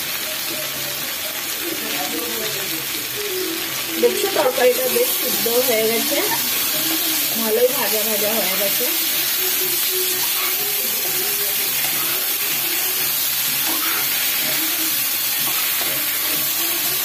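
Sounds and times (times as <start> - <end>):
vegetables sizzling in a pan: 0.0 - 17.0.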